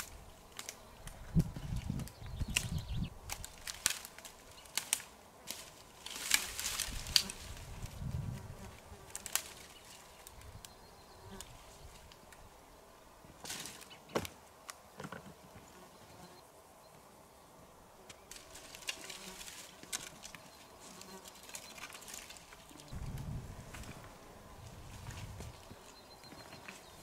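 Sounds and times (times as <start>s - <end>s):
rustling in grass: 0.0s - 14.7s, 18.0s - 27.0s
sharp cracks and clicks: 2.5s - 5.1s.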